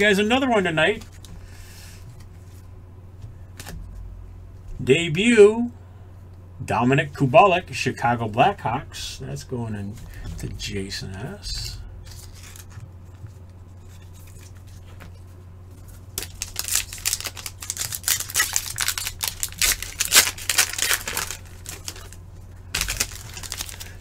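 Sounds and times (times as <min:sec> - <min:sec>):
low electrical hum: 0:00.0 - 0:24.0
foil wrapper crinkling: 0:11.6 - 0:15.2, 0:15.8 - 0:24.0.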